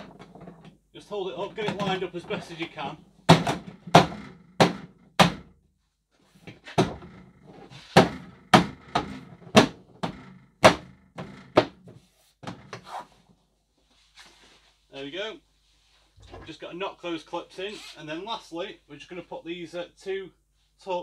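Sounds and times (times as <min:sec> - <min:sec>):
hands thumping plastic panel: 0:01.4 - 0:02.4, 0:03.3 - 0:05.5, 0:06.5 - 0:07.3, 0:07.9 - 0:12.9.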